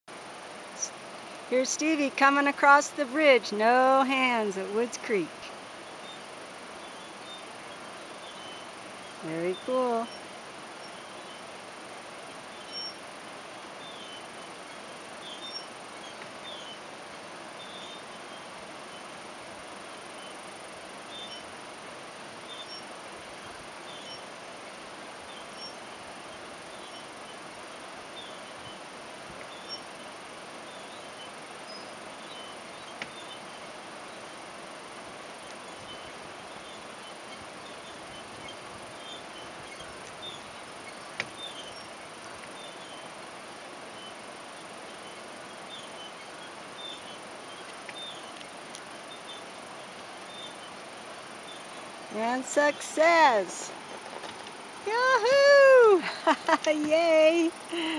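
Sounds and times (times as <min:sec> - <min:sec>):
faint bird chirps: 0:06.8 - 0:19.2, 0:20.1 - 0:52.8.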